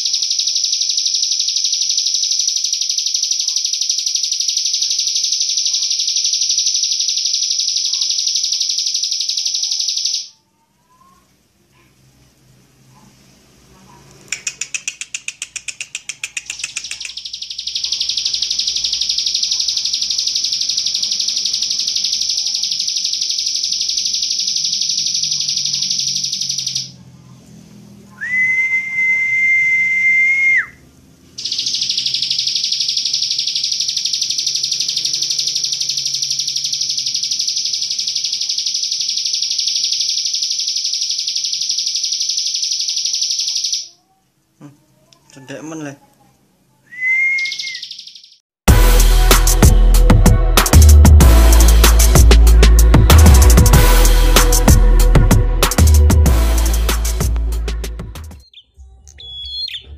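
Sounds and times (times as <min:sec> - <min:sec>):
bird stutter of high notes: 0:14.4 - 0:27.0, 0:31.4 - 0:43.8
bird steady whistled note: 0:28.2 - 0:30.8, 0:46.9 - 0:48.4
bird buzzing trill: 0:47.2 - 0:48.3.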